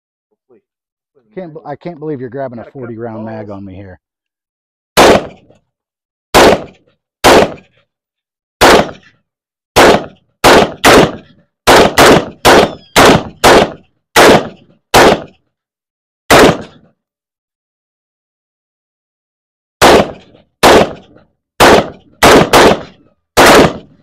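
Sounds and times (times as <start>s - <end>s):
rifle shots: 5.0s - 5.5s, 6.3s - 7.7s, 8.6s - 9.1s, 9.8s - 15.4s, 16.3s - 16.8s, 19.8s - 24.0s.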